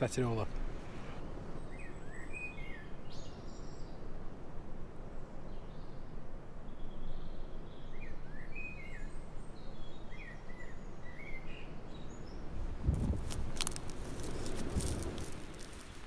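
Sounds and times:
small bird chirping: 0:06.8 - 0:16.0
wind buffeting microphone: 0:12.4 - 0:16.0
footsteps through dry grass: 0:12.6 - 0:16.0.

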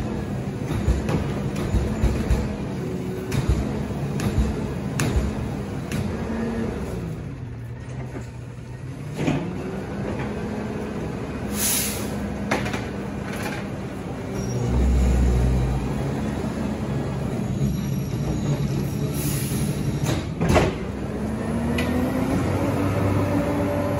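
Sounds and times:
garbage truck engine running: 0:00.0 - 0:23.9
short hiss of air: 0:11.5 - 0:12.2.

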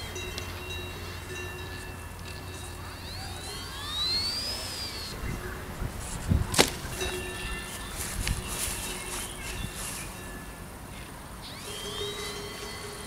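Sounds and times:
model glider whine: 0:00.0 - 0:13.0
wind on microphone: 0:04.4 - 0:10.5.

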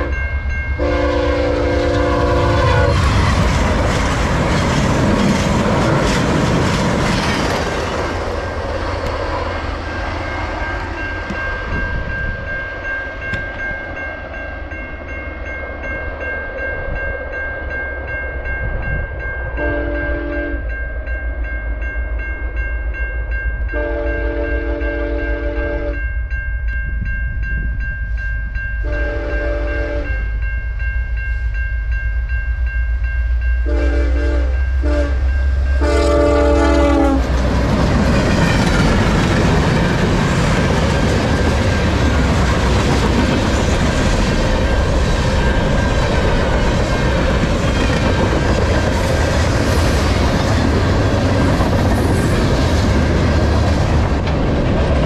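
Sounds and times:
locomotive horn blasts: 0:00.0 - 0:00.2, 0:00.8 - 0:03.0, 0:19.6 - 0:20.6, 0:23.7 - 0:26.0, 0:28.8 - 0:30.2, 0:33.6 - 0:37.4
crossing bell ringing: 0:00.0 - 0:54.3.

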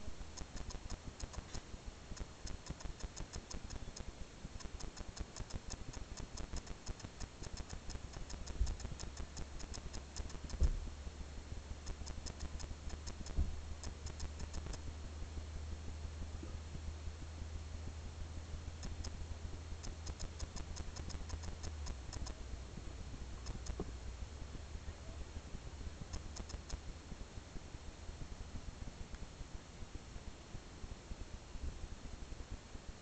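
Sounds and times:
low steady hum: 0:00.0 - 0:33.0
rapid light clicking: 0:00.1 - 0:11.0, 0:11.6 - 0:14.9, 0:18.7 - 0:24.0, 0:25.5 - 0:27.0.

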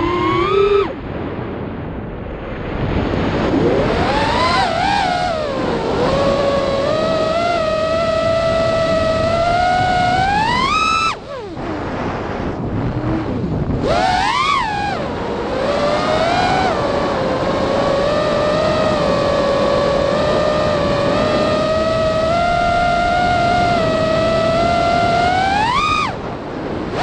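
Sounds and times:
drone motors whining: 0:00.0 - 0:01.0, 0:03.5 - 0:27.0
wind noise on microphone: 0:00.0 - 0:27.0.

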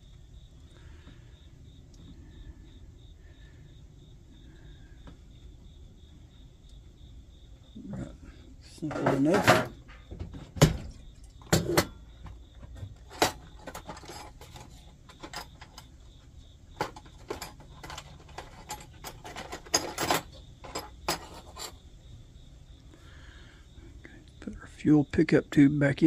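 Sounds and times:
small metal parts clicking on wood: 0:10.9 - 0:15.9, 0:16.8 - 0:21.8.

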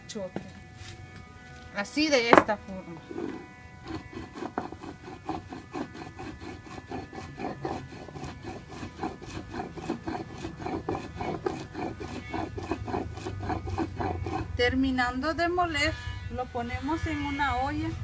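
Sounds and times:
stone grinding on stone: 0:01.9 - 0:14.6.

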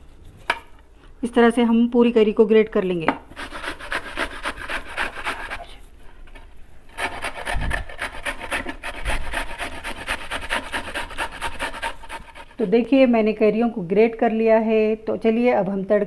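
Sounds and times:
mango rasping on grater: 0:03.3 - 0:05.8, 0:06.9 - 0:12.6.

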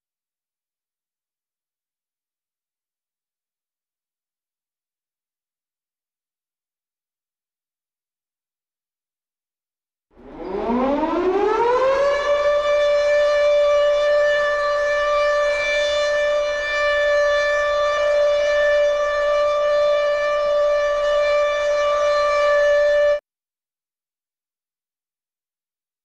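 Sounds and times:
siren wailing: 0:10.2 - 0:23.2.

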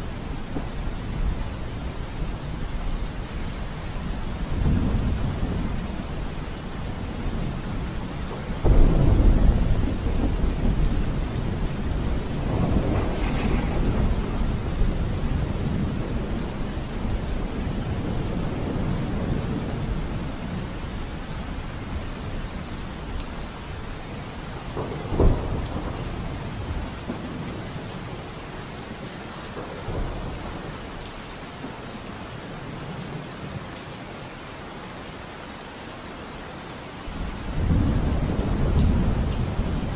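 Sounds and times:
steady rain: 0:00.0 - 0:39.9
rolling thunder: 0:04.1 - 0:28.2, 0:37.1 - 0:39.9.

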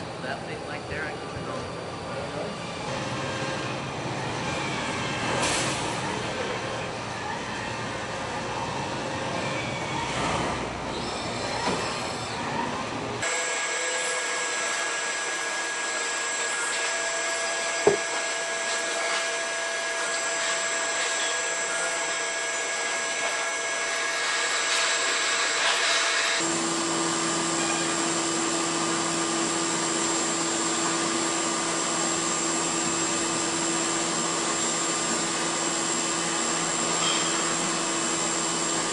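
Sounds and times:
milling machine cutting metal: 0:13.2 - 0:38.9.

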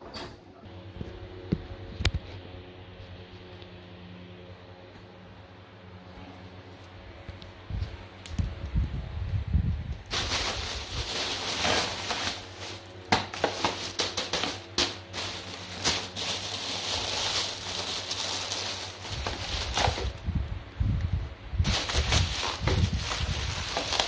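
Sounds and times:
plastic bags rustling and crinkling: 0:09.9 - 0:20.3, 0:21.6 - 0:24.0.

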